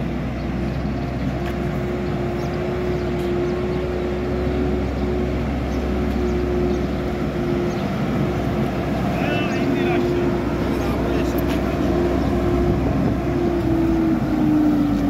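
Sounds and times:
backhoe loader diesel engine: 0:00.0 - 0:15.0
constant hum: 0:00.0 - 0:15.0.

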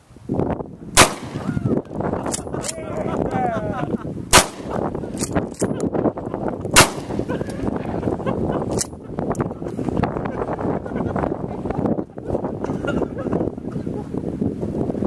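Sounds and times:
shotgun shots: 0:01.0 - 0:01.5, 0:04.3 - 0:04.9, 0:06.8 - 0:07.3.

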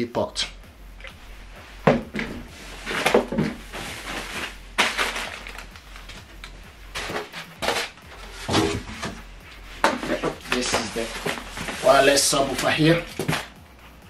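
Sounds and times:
packaging rustling and scraping: 0:02.1 - 0:09.2, 0:09.8 - 0:13.6.

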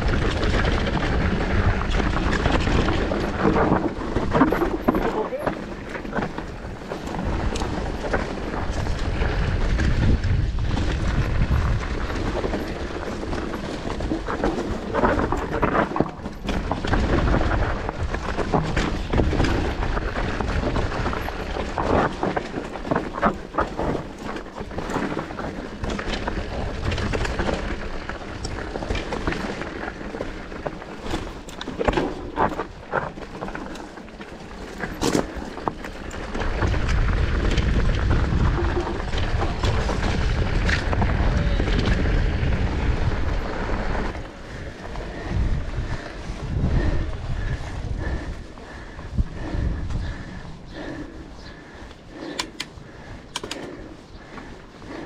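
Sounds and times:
bike rattling and knocking: 0:00.0 - 0:55.0
wind rumbling on microphone: 0:00.0 - 0:55.0
tyres on stones: 0:00.2 - 0:09.1.

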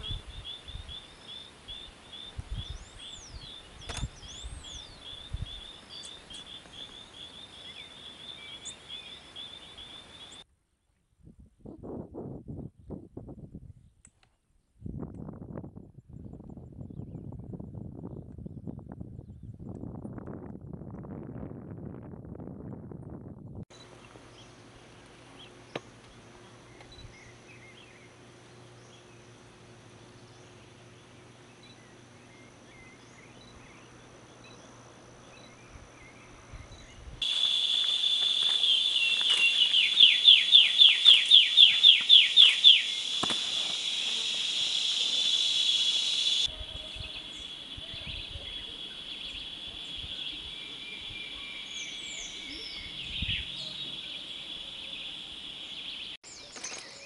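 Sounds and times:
bird chirps: 0:00.0 - 0:10.4, 0:30.0 - 0:57.0
warbler song: 0:00.0 - 0:11.0, 0:23.7 - 0:57.0
high insect buzz: 0:37.2 - 0:46.5.

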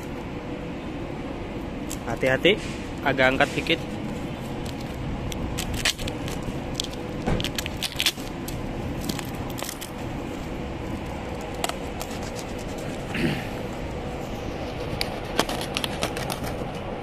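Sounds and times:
background hum: 0:00.0 - 0:17.0
cardboard being cut and ripped: 0:14.9 - 0:16.6.

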